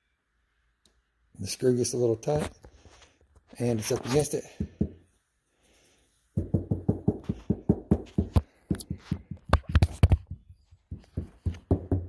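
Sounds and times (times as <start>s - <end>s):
plastic knocks and taps: 6.4s - 12.0s.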